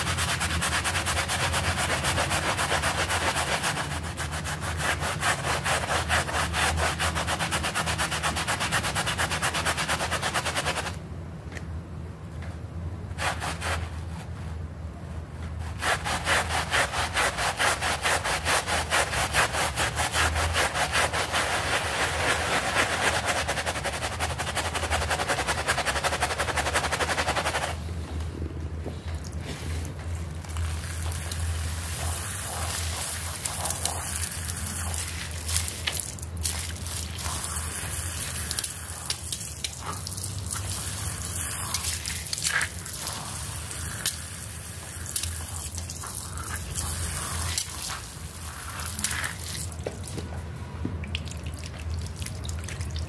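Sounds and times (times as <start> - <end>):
brush scrubbing a soapy rug: 0.0 - 11.0, 13.1 - 14.6, 15.4 - 27.9, 29.4 - 50.1
wet rubbing by hand: 29.2 - 50.1.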